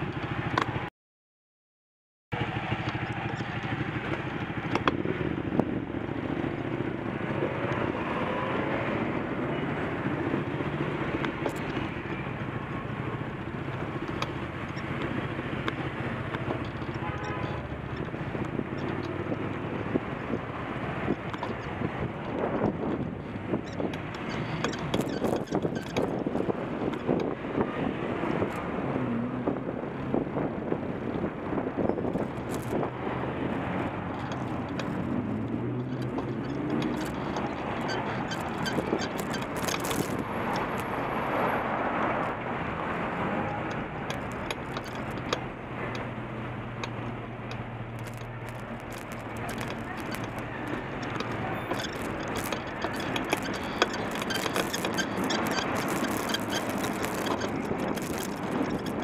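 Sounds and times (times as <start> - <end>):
wind and road noise: 0.0 - 0.9, 2.3 - 59.0
car engines running: 2.3 - 59.0
bicycle clicks and rattles: 2.5 - 6.7, 10.0 - 27.5, 31.9 - 41.1, 43.4 - 59.0
sharp clicks: 32.1 - 32.9, 34.1 - 41.0, 43.5 - 46.1, 46.8 - 59.0.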